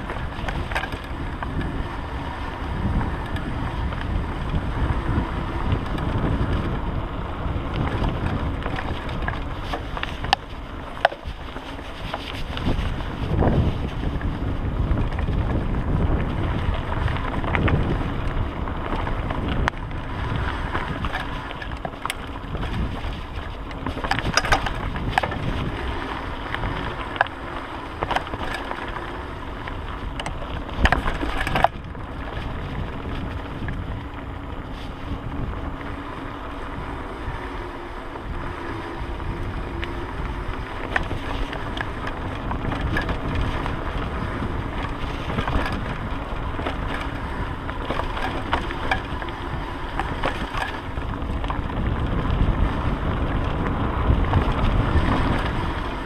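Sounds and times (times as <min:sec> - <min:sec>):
bike rattling: 0:00.0 - 0:56.0
tyres rumbling on dirt: 0:00.0 - 0:56.0
wind buffeting microphone: 0:00.0 - 0:56.0.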